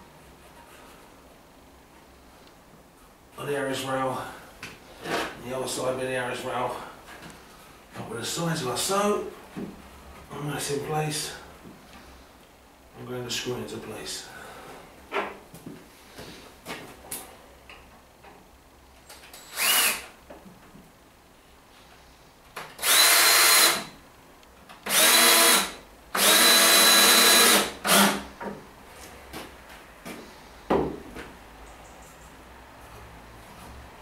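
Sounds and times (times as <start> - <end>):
cordless drill driving screws: 19.3 - 20.1, 22.8 - 23.9, 24.8 - 28.2.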